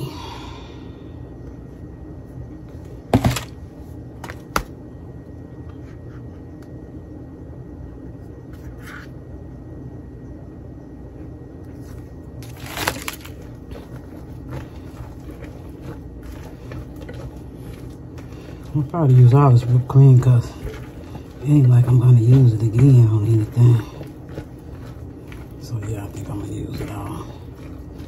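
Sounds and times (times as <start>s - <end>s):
steady low hum: 0.0s - 28.0s
spatula scraping plastic tub: 13.2s - 28.0s.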